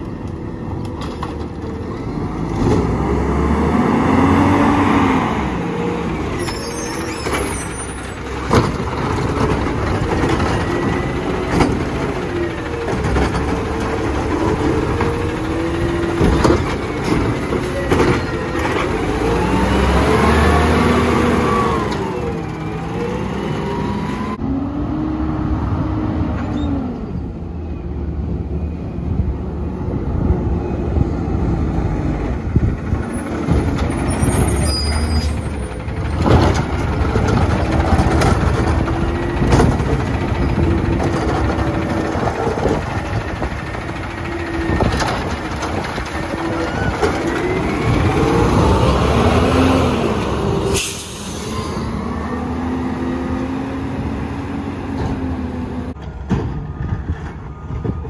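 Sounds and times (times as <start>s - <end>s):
garbage truck engine revving: 1.3s - 26.9s, 29.7s - 56.0s.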